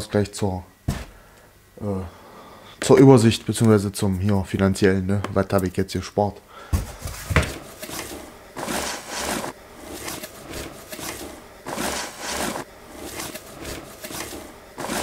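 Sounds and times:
cardboard boxes scraping together: 7.7 - 15.0.

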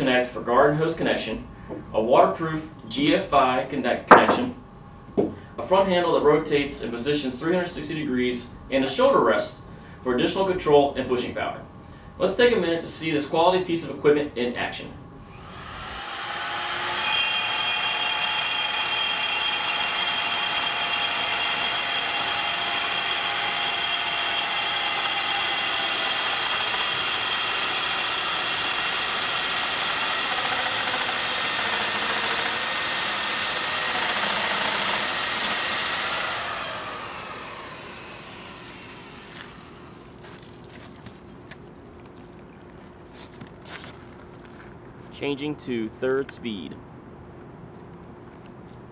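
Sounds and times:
core drill whining: 15.3 - 40.1.

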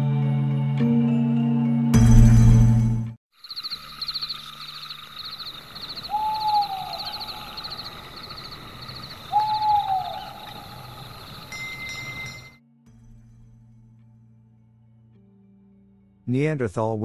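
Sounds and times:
insects chirping: 3.3 - 12.6
owl hooting: 3.4 - 12.5.

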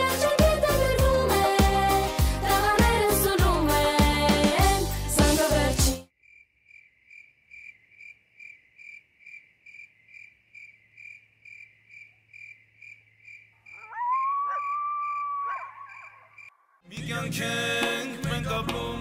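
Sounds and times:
cricket chirping: 6.1 - 16.7.

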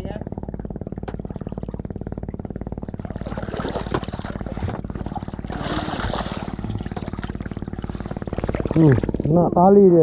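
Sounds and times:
boat engine running: 0.0 - 10.0
water splashing and churning: 0.4 - 9.6.

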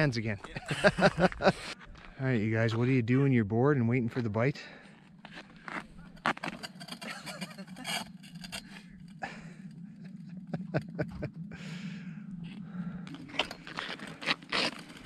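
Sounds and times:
steady low hum: 0.0 - 15.0
chair scraping across ice: 5.3 - 8.8, 13.2 - 15.0.

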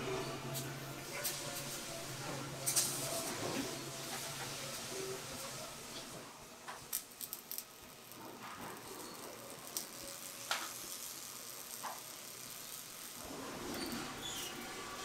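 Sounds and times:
welding torch hissing and crackling: 0.0 - 15.0.

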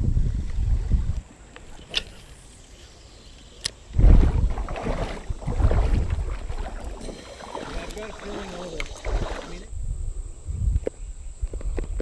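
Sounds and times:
water splashing around wading legs: 4.0 - 9.7.

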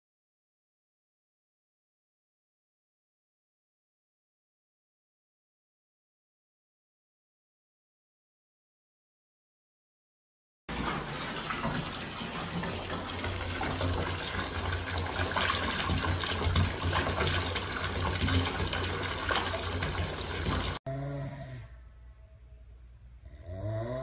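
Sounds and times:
water pouring into bathtub: 10.7 - 20.8.

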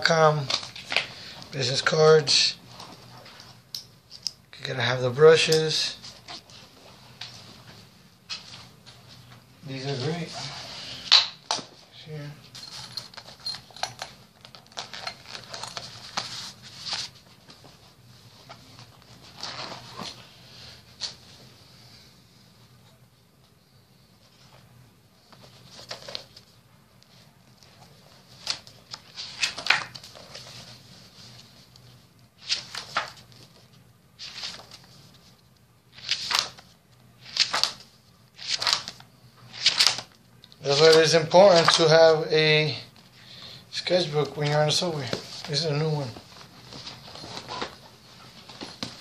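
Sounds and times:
paper pages turning: 14.4 - 17.8, 28.3 - 31.6, 32.4 - 35.3, 35.9 - 41.9
fabric bags rustling: 44.0 - 49.0.

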